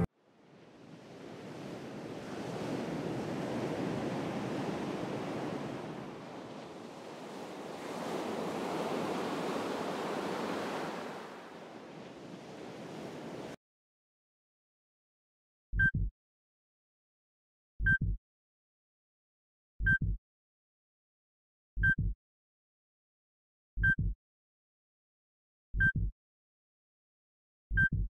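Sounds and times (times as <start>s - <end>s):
ocean waves washing in: 0.0s - 13.6s.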